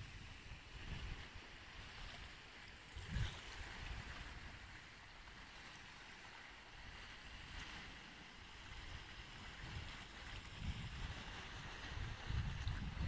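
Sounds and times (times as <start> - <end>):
wind gusts buffeting microphone: 3.0 - 4.5, 8.7 - 13.0.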